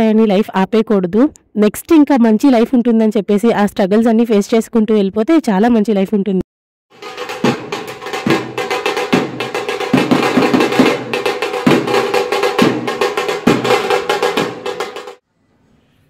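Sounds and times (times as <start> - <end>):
frame drums beating: 6.9 - 15.2.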